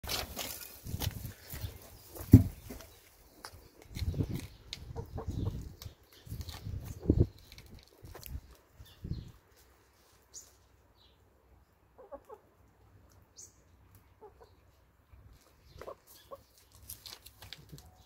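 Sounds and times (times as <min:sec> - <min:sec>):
beaks and feet scratching soil: 0:00.0 - 0:10.9, 0:12.0 - 0:18.0
hens clucking: 0:04.7 - 0:05.8, 0:11.9 - 0:12.6, 0:14.0 - 0:14.7, 0:15.4 - 0:16.6.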